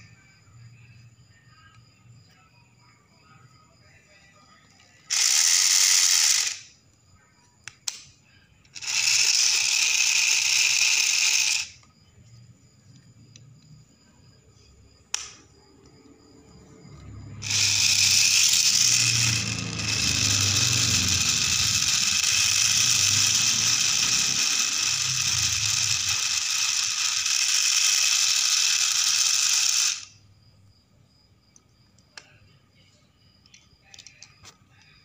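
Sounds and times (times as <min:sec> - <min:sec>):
toy car gearbox rattling whir: 0:05.1 - 0:06.7, 0:08.7 - 0:11.9, 0:17.4 - 0:30.1.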